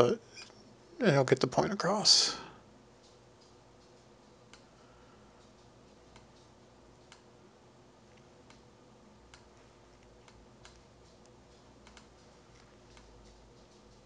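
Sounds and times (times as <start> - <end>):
low room hiss: 0.0 - 14.0
faint computer mouse clicks: 5.4 - 7.3, 9.3 - 13.8.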